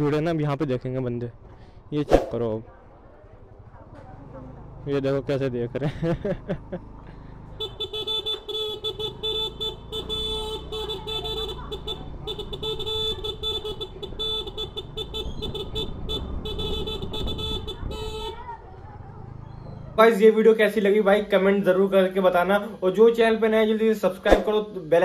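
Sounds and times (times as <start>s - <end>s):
scooter horn blasts: 7.6s - 18.4s.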